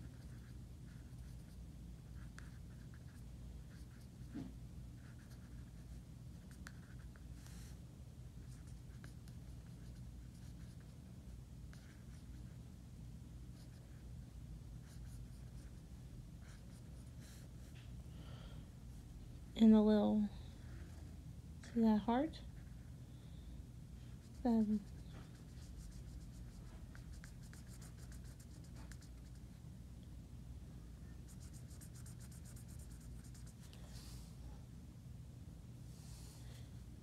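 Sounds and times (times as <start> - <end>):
marker scratching on paper: 0.0 - 7.8, 8.4 - 10.9, 11.7 - 12.6, 13.6 - 14.0, 14.8 - 15.8, 16.4 - 17.8, 24.2 - 29.4, 31.3 - 33.7
steady low hum: 0.0 - 37.0.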